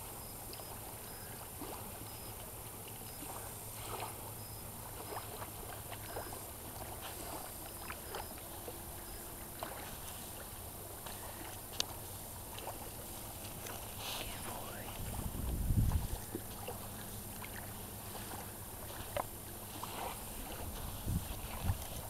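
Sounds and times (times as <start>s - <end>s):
low rush of water and air: 0.0s - 22.0s
faint ticks: 0.4s - 1.4s, 11.0s - 12.8s.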